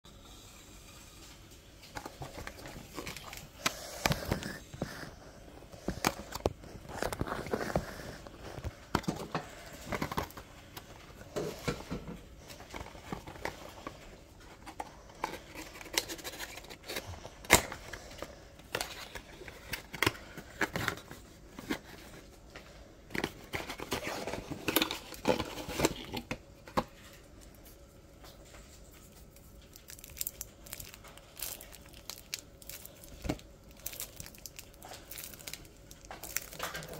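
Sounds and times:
plastic shrink-wrap crinkling: 1.2 - 11.8, 26.9 - 36.9.

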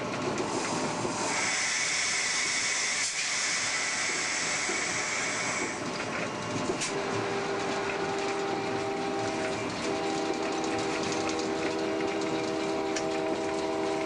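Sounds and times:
train rolling noise: 0.0 - 14.0
air brake hissing: 0.6 - 5.8.

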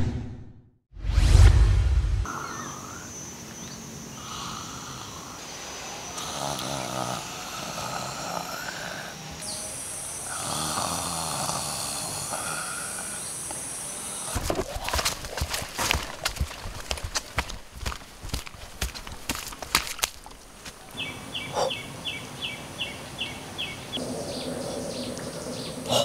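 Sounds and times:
person snoring: 6.1 - 9.2, 10.2 - 13.4.

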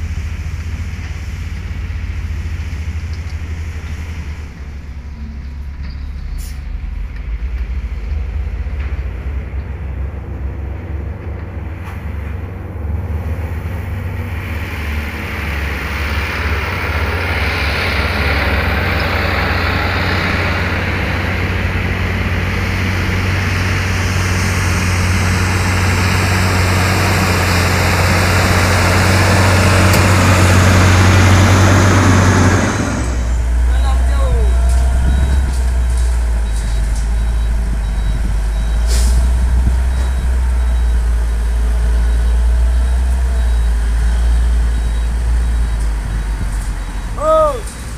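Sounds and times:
diesel truck engine drone: 0.0 - 47.9
tyres hissing: 29.1 - 39.8.

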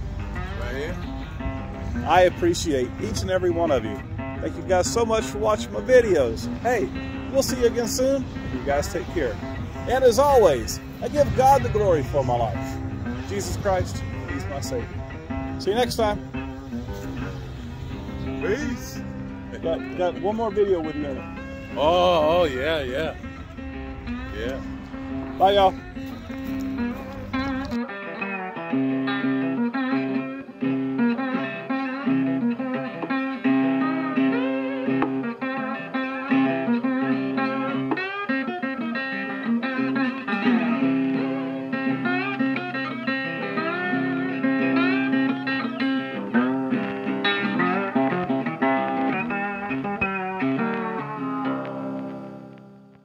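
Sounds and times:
blues guitar instrumental: 0.0 - 53.0.

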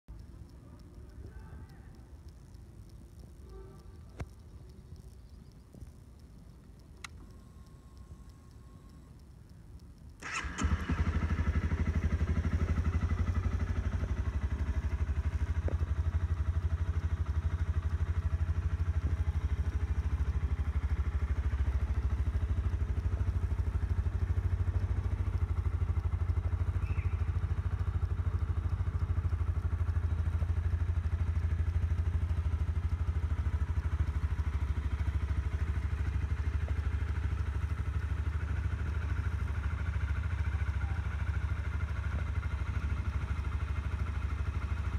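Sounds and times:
motorcycle engine starting and idling: 10.0 - 44.9.

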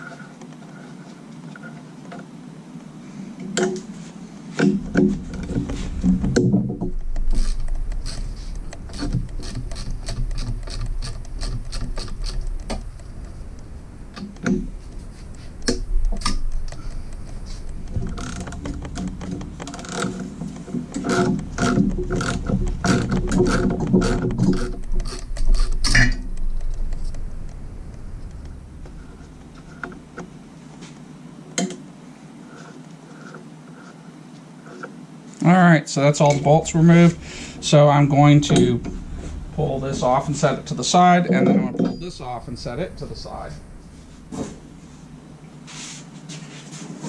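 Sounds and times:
socket ratchet clicking: 7.1 - 13.2, 21.0 - 27.2.

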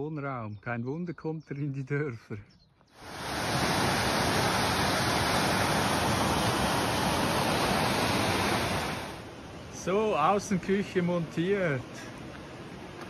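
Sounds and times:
stream rushing over rocks: 3.0 - 9.3.

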